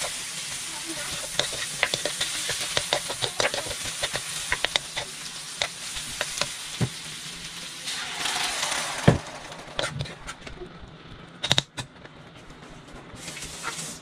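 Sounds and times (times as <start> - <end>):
sizzling hiss: 0.0 - 10.4.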